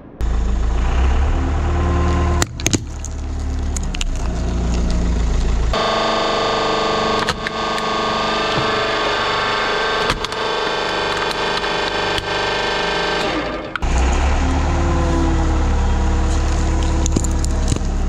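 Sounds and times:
truck engine rumbling: 0.0s - 18.0s
hydraulic press motor hum: 0.2s - 18.0s
sharp cracks of crushing: 2.4s - 5.6s, 10.0s - 14.2s, 16.1s - 18.0s.

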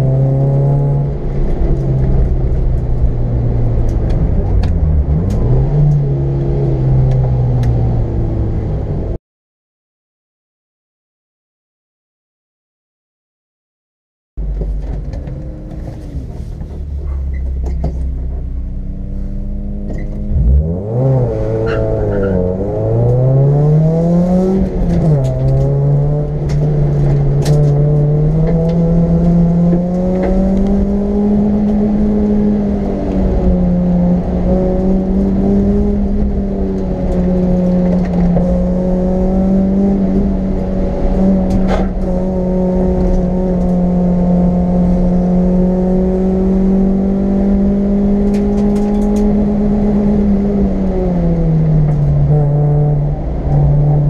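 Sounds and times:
race car engine: 0.0s - 9.2s, 14.4s - 54.0s.

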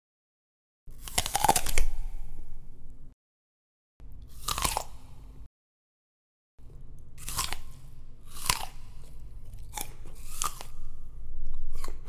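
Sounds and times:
sharp crunching: 0.9s - 2.0s, 4.3s - 5.1s, 7.2s - 10.9s.

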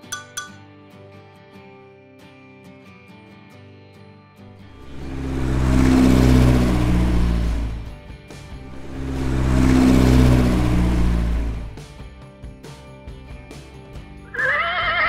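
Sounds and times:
vehicle engine droning: 4.6s - 12.0s.

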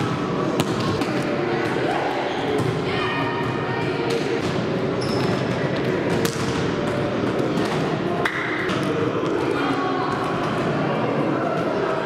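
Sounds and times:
sports hall noise: 0.0s - 12.0s
volleyball hits: 3.4s - 10.7s.

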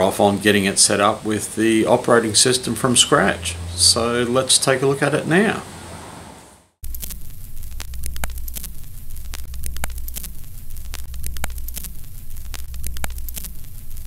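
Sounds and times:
film soundtrack crackle and pops: 6.8s - 14.0s
steady hum: 6.8s - 14.0s.

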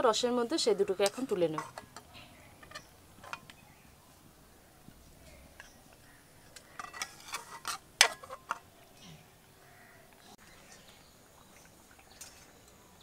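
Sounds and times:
metal utensil clinking against pan: 1.0s - 3.5s, 6.5s - 8.6s.

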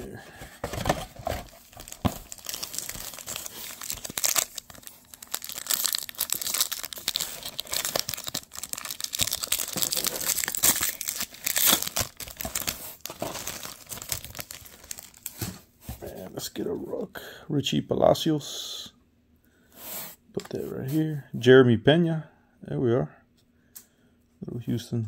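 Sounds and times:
foil wrapper crinkling and tearing: 1.2s - 15.5s.

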